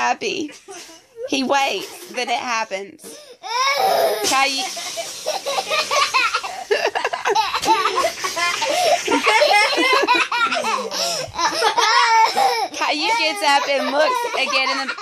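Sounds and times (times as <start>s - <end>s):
people laughing: 4.7s - 12.6s, 13.5s - 15.0s
child giggling: 4.7s - 12.7s, 13.4s - 15.0s.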